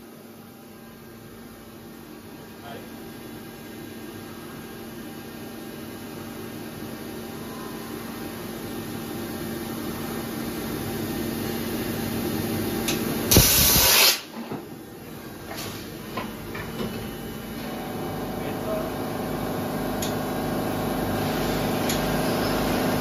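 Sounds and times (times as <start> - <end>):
compressed air hiss: 13.3 - 14.3
machine humming: 14.8 - 23.0.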